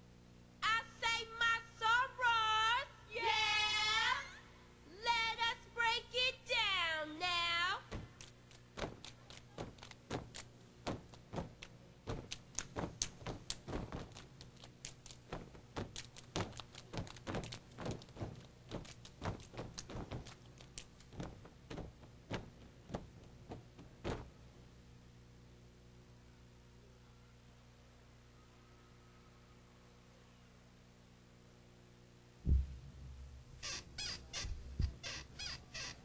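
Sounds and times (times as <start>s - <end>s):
unison stomps and hand claps: 7.9s - 24.3s.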